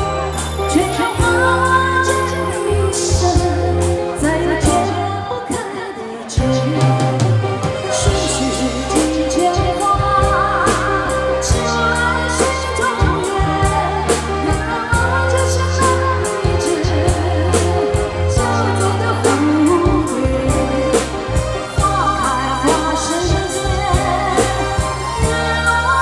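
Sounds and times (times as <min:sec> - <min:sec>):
bass line: 0:00.0 - 0:05.4, 0:06.4 - 0:26.0
person singing: 0:00.0 - 0:26.0
steady drum beat: 0:06.4 - 0:26.0.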